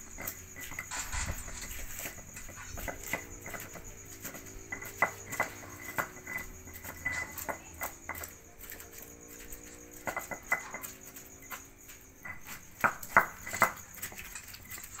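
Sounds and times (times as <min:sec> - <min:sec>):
stone pestle grinding paste: 0:00.0 - 0:15.0
stone knocking on stone: 0:00.2 - 0:08.4, 0:10.0 - 0:11.2, 0:12.2 - 0:13.8.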